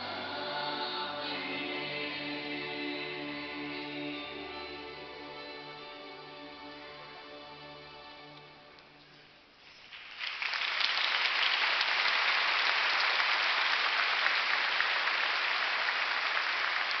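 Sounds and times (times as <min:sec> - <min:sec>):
congregation applauding: 0:09.8 - 0:17.0.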